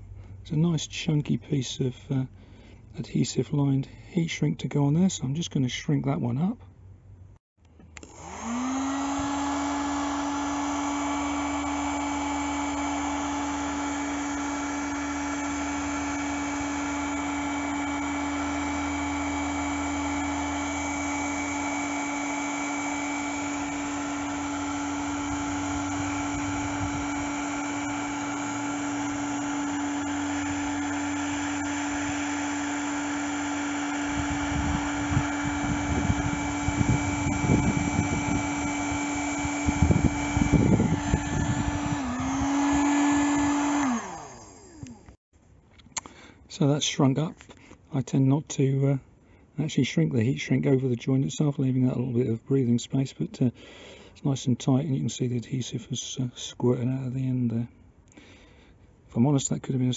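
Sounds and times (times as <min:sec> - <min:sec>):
heat gun whining: 0:07.6 - 0:45.2.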